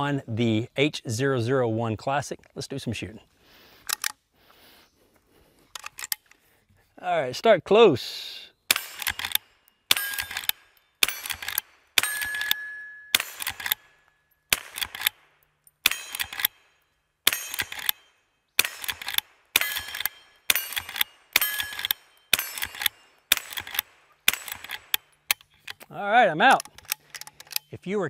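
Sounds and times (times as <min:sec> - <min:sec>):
rifle shots: 0:08.7 - 0:16.6, 0:17.2 - 0:25.1
steel target plate ringing: 0:09.9 - 0:10.4, 0:12.0 - 0:14.2, 0:17.3 - 0:18.3, 0:19.6 - 0:23.1.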